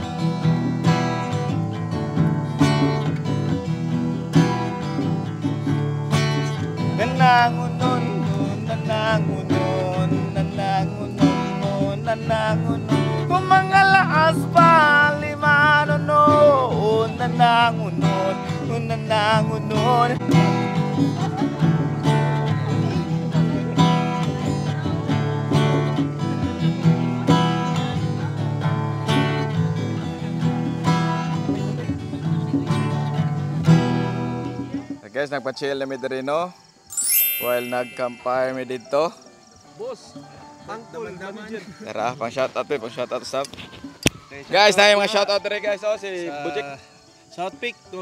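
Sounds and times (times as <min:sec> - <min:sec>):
acoustic guitar strumming: 0:00.0 - 0:34.8, 0:36.9 - 0:39.1
man singing: 0:06.9 - 0:20.6.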